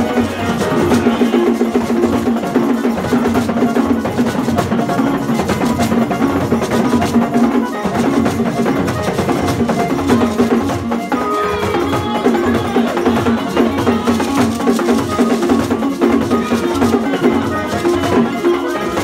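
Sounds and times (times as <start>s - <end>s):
drums beaten in fast rhythm: 0.0s - 19.0s.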